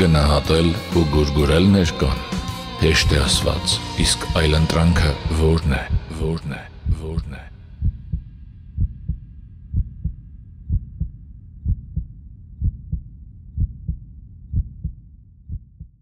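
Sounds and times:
low rumble: 4.2s - 16.0s
heartbeat thumps: 5.2s - 16.0s.

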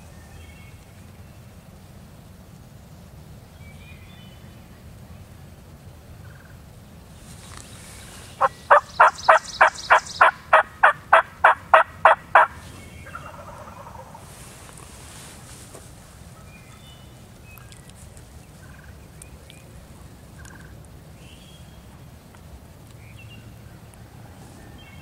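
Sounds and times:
turkey yelps: 8.4s - 14.2s.

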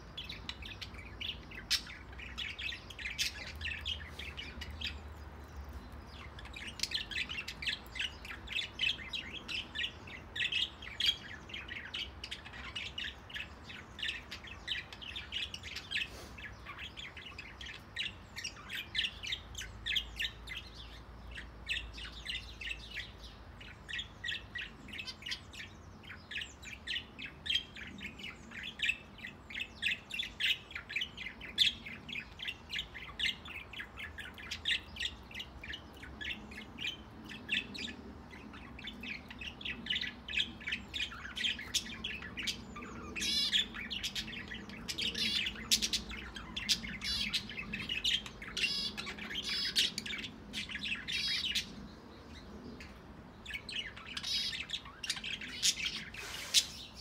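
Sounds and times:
birds chirping: 0.0s - 57.0s
birds warbling chatter: 0.0s - 57.0s.

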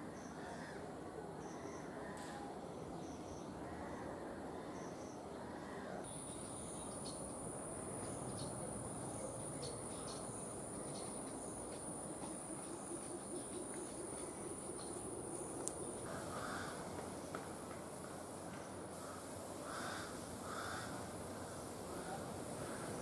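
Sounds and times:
background hiss: 0.0s - 23.0s
high-pitched insect call: 6.1s - 16.8s, 18.0s - 23.0s.

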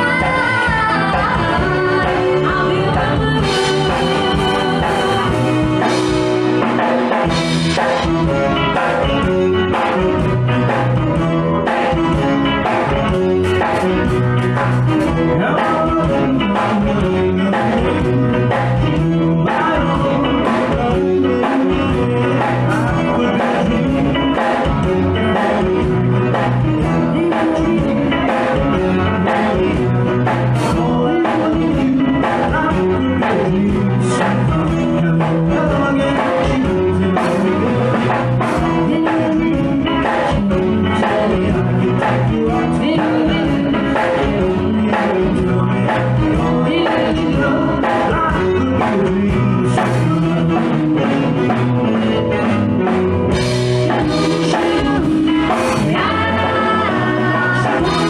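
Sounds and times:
keyboard: 0.0s - 58.0s
person singing: 0.0s - 58.0s.

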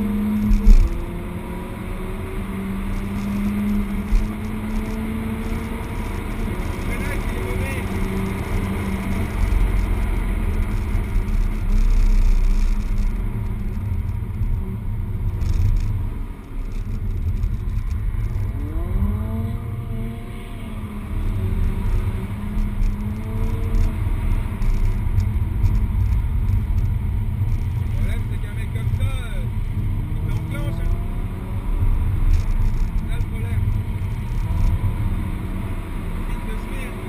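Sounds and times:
car engine rumbling from inside: 0.0s - 37.0s.

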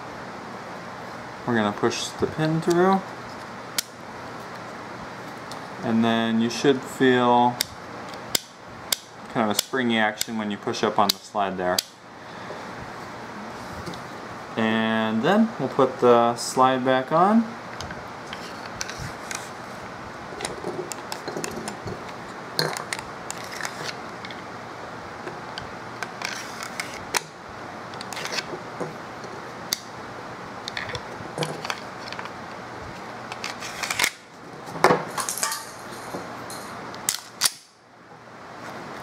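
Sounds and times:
pistol parts clicking and clacking: 37.1s - 37.7s.

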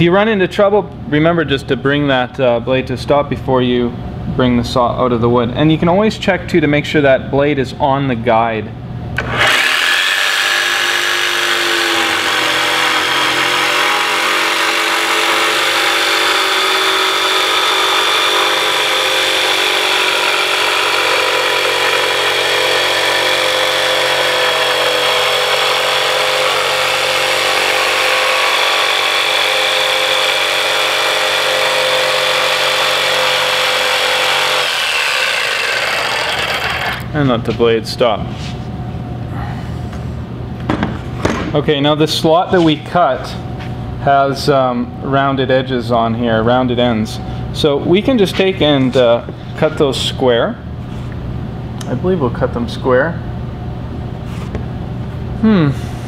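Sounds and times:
jigsaw cutting wood: 9.2s - 37.0s.

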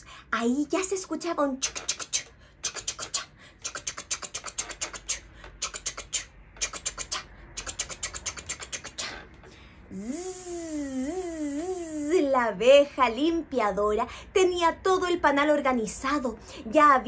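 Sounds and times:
woman imitating buzzing bee: 9.9s - 12.2s.

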